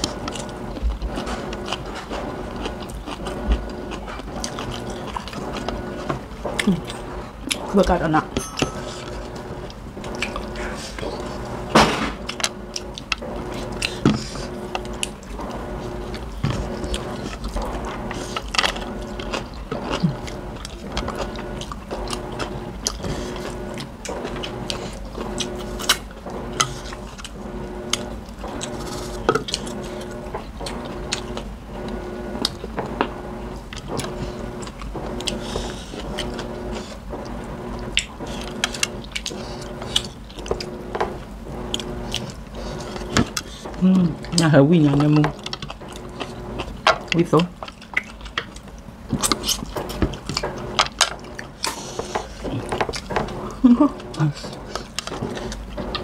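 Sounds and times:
chewing and biting: 0.0s - 8.0s, 8.8s - 56.0s.

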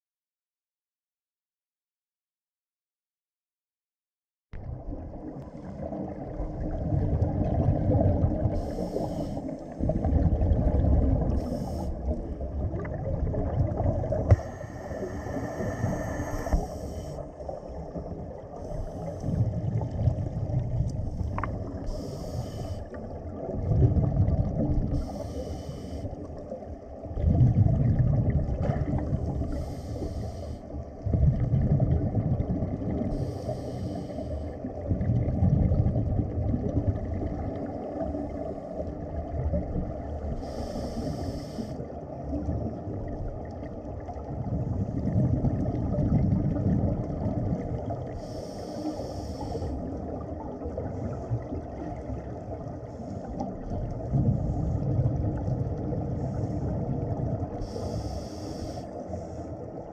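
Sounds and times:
exhaled bubbles rumbling: 4.6s - 59.9s
regulator inhale hiss: 8.5s - 9.9s, 11.3s - 12.2s, 14.2s - 17.5s, 18.6s - 19.8s, 21.1s - 23.1s, 24.9s - 26.3s, 29.2s - 30.8s, 33.1s - 34.7s, 40.2s - 41.9s, 48.1s - 50.0s, 57.6s - 59.8s.

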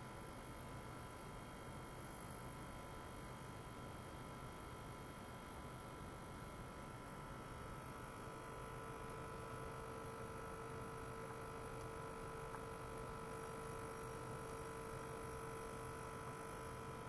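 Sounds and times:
electrical hum and whine: 0.0s - 17.0s.

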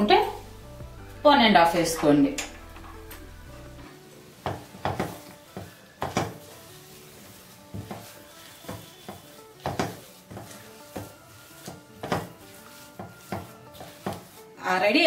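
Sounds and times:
faint background music: 0.0s - 15.0s
spatula scraping dough in pan: 4.4s - 15.0s.

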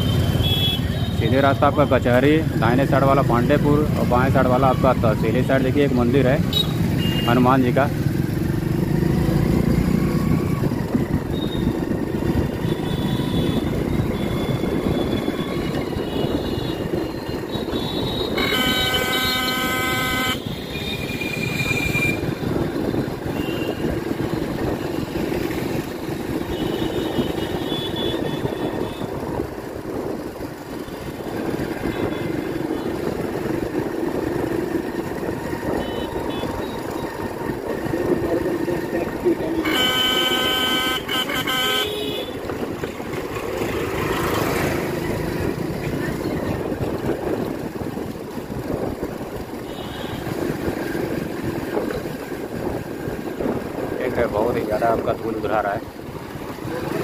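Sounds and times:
horn honking: 0.0s - 2.0s, 6.4s - 7.4s, 12.4s - 22.4s, 26.3s - 29.2s, 35.7s - 37.1s, 39.2s - 42.7s
road noise: 0.0s - 57.0s
motorcycle engine running: 7.9s - 19.8s, 20.4s - 53.9s
short higher horn toot: 18.2s - 20.4s, 39.5s - 42.4s.

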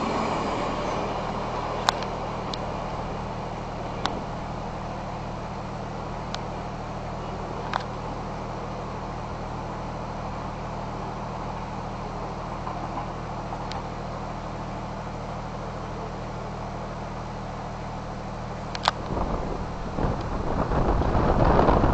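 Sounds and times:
electric train humming and rumbling: 0.0s - 21.9s
wind buffeting microphone: 18.8s - 21.9s.

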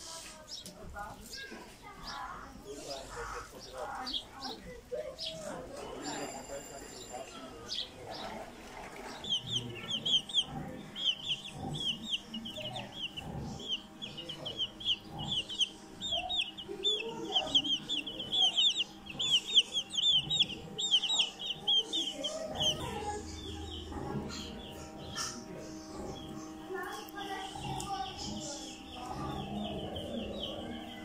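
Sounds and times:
chick peeping: 0.0s - 31.0s.

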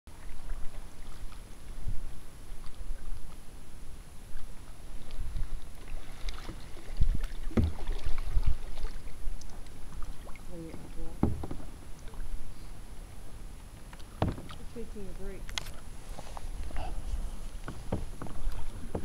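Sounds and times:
paddle strokes splashing water: 0.1s - 19.0s
knocks on kayak: 7.5s - 8.0s, 11.2s - 11.7s, 14.2s - 14.6s, 17.6s - 19.0s.

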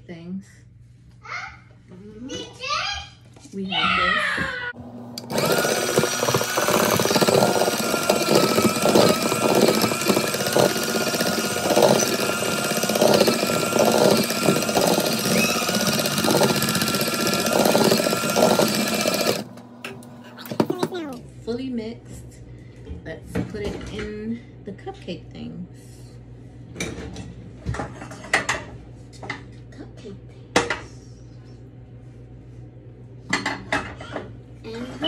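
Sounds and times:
electric hand mixer whining: 4.8s - 20.9s.

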